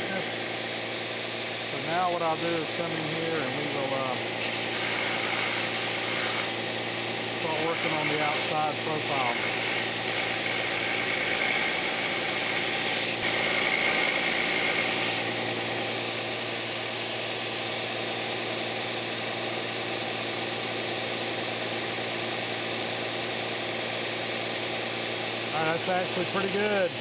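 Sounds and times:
belt sander grinding metal: 0.0 - 17.0, 25.3 - 27.0.

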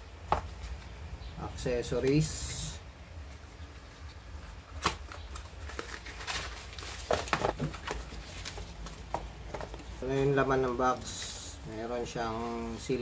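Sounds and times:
steady low hum: 0.0 - 13.0
packaging rustling: 3.5 - 13.0.

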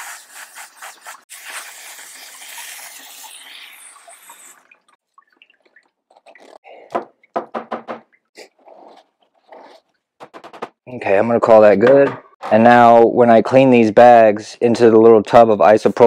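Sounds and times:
hose nozzle spraying water: 0.0 - 5.0.

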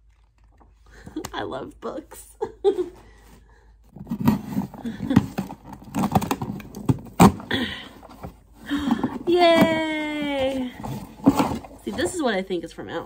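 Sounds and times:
packaging rustling and crinkling: 4.0 - 12.4.

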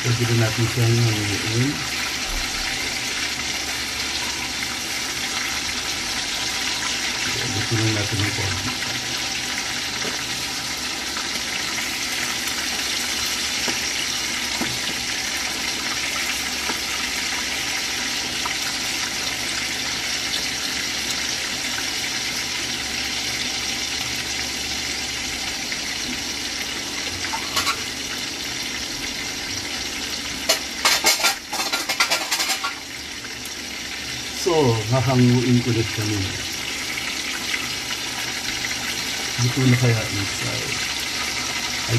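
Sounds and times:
chicken frying in hot oil: 0.0 - 41.9
metal utensil scraping a pan: 27.2 - 27.9, 30.5 - 32.8.

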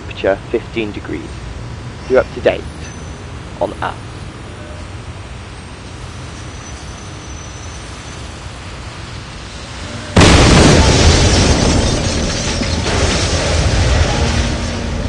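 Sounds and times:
explosion blast and rumble: 10.1 - 15.0.

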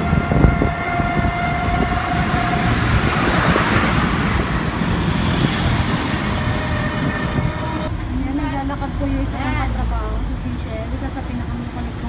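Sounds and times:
rushing noise: 0.0 - 8.2
steady tone: 0.0 - 9.6
road noise: 0.0 - 12.0.

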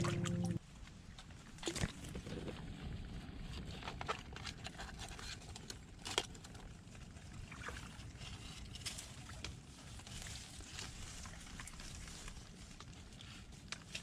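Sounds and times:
muddy water sloshing: 0.0 - 0.6.

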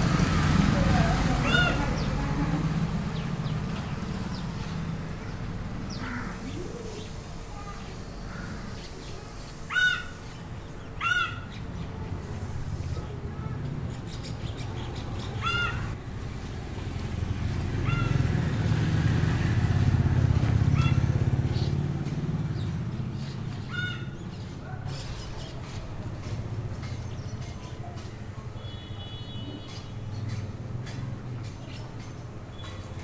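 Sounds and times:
bird calls: 1.4 - 12.0, 12.8 - 16.0, 22.5 - 33.0.

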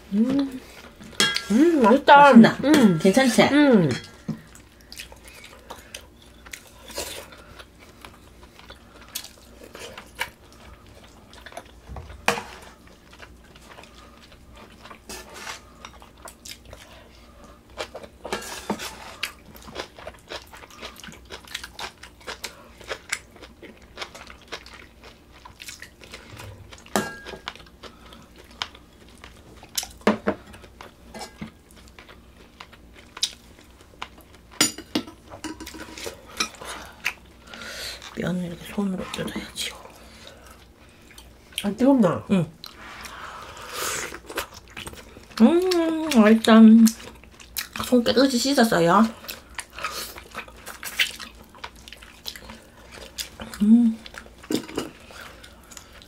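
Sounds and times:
chewing: 4.1 - 34.6, 44.0 - 46.2, 46.8 - 48.0, 49.1 - 56.0.

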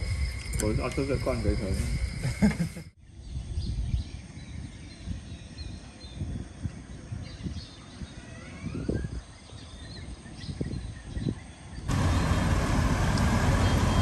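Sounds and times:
birds chirping: 0.0 - 14.0
street traffic of motorbikes and cars: 11.9 - 14.0.

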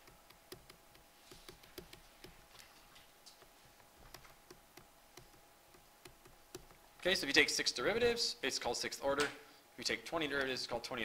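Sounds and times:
faint steady hum: 0.0 - 11.0
stylus tapping on writing surface: 0.3 - 2.4.

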